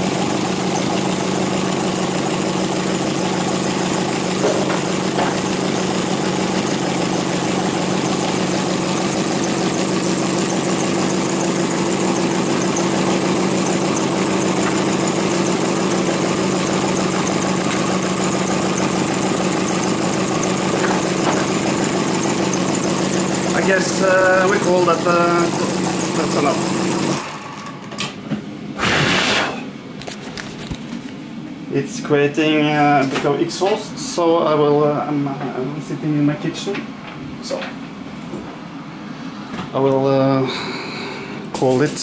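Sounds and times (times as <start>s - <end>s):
model engine running: 0.0s - 27.7s.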